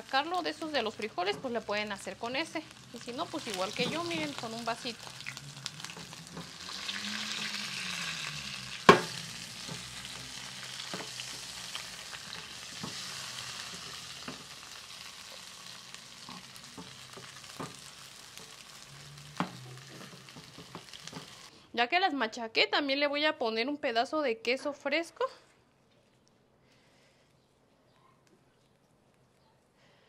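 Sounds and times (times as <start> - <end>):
potatoes sizzling in hot oil: 0.0 - 21.5.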